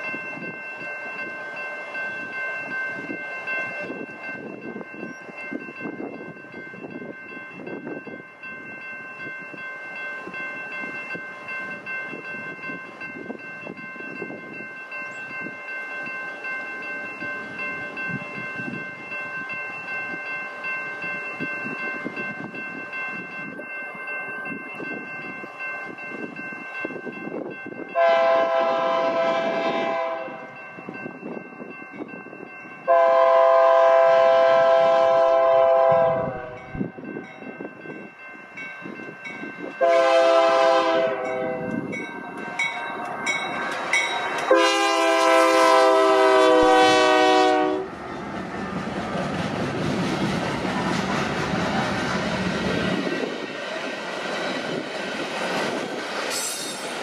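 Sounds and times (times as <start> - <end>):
crossing bell ringing: 0.0 - 57.0
train rumble: 0.0 - 57.0
locomotive air horn blasts: 28.0 - 30.5, 32.9 - 36.6, 39.8 - 41.8, 44.5 - 47.9.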